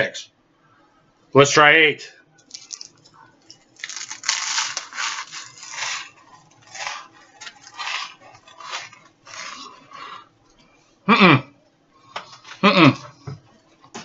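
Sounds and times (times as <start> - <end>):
crackers crunched and chewed: 2.5 - 10.0.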